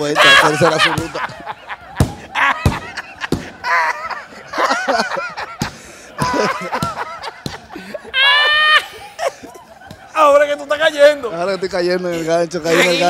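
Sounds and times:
man laughing loudly: 0.0s - 10.1s.

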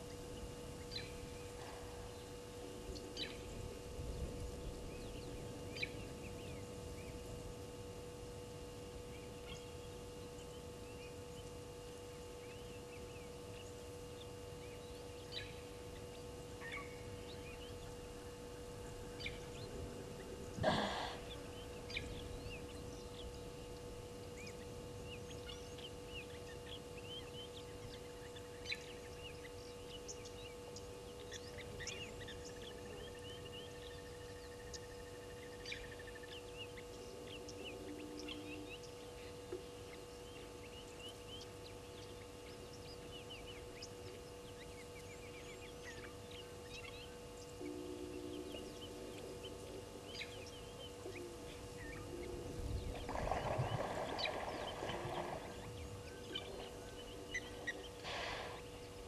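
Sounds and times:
steady low hum: 0.0s - 59.0s
birds chirping: 9.0s - 59.0s.

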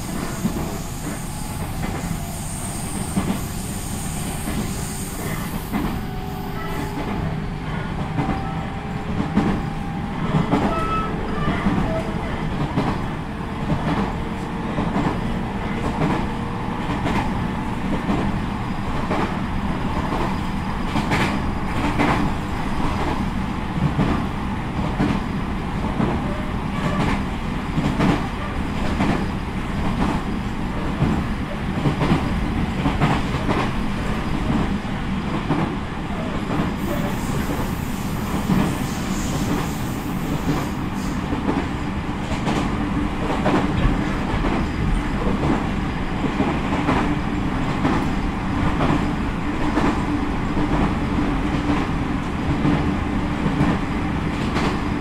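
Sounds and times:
train wheels rumbling on rail: 0.0s - 55.0s
clacks over rail joints: 52.5s - 54.9s.

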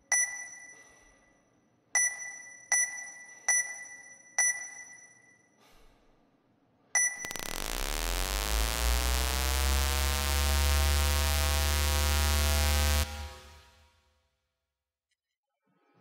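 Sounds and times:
deep droning hum: 7.3s - 13.9s.

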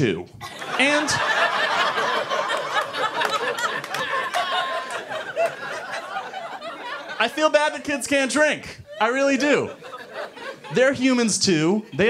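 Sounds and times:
audience laughing: 0.4s - 12.0s.

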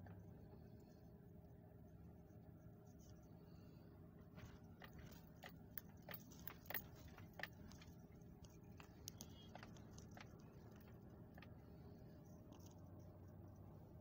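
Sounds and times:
light clicks and ticks: 4.4s - 13.7s.

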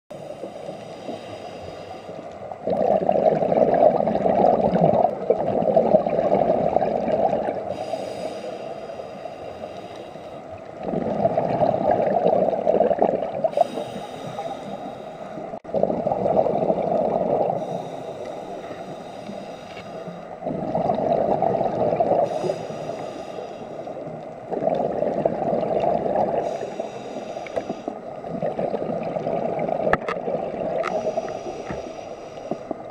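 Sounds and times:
hissing inhalations through regulator: 0.1s - 3.0s, 7.4s - 11.4s, 13.4s - 15.7s, 16.7s - 20.9s, 21.7s - 28.8s, 30.7s - 32.9s
exhaled bubbles: 2.5s - 7.9s, 10.6s - 19.1s, 20.3s - 23.1s, 23.8s - 31.9s.

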